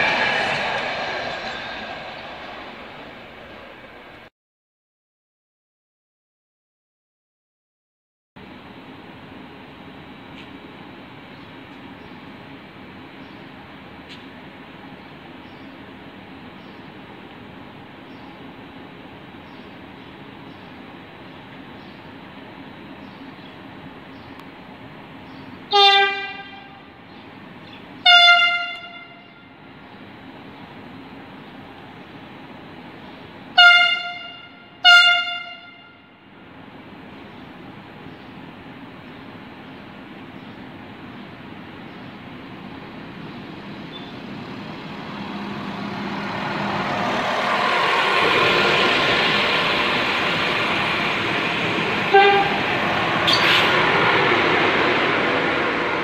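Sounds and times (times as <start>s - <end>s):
diesel train passing: 0.0s - 4.3s, 8.4s - 56.0s
train horn blasts: 25.7s - 27.0s, 28.0s - 29.6s, 33.6s - 36.2s, 51.9s - 53.7s.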